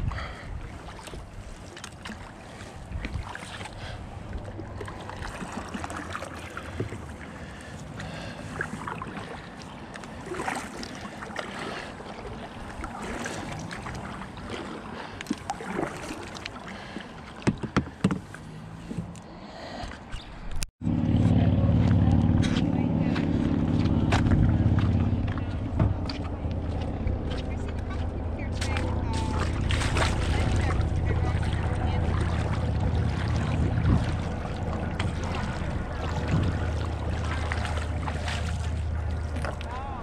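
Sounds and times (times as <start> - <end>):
kayak paddle splashing water: 0.0 - 19.1, 21.8 - 40.0.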